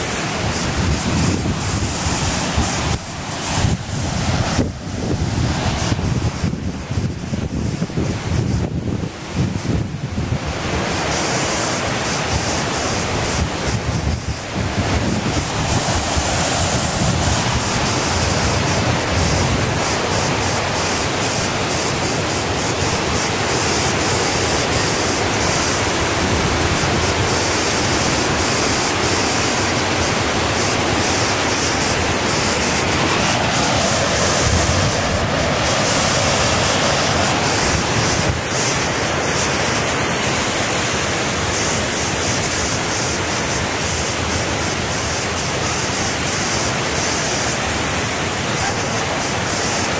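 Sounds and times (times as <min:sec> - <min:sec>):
wind buffeting microphone: 0:00.0 - 0:46.4
rushing water: 0:00.0 - 0:49.9.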